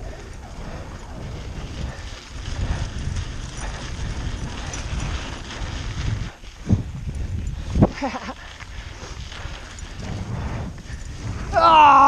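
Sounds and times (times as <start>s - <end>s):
tyres rumbling on dirt road: 0.0s - 11.6s
bike rattling over bumps: 0.0s - 12.0s.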